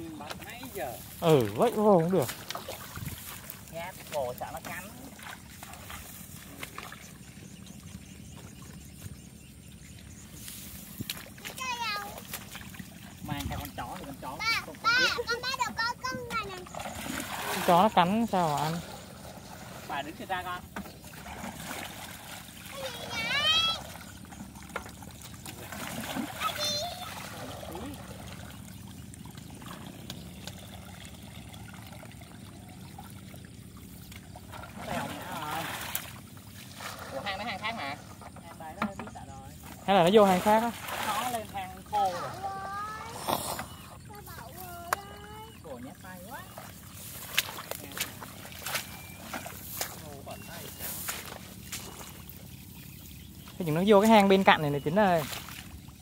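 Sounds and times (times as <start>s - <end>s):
wading through muddy water: 0.0s - 56.0s
wind rumbling on microphone: 2.7s - 3.4s
faint high chirp: 48.6s - 53.8s.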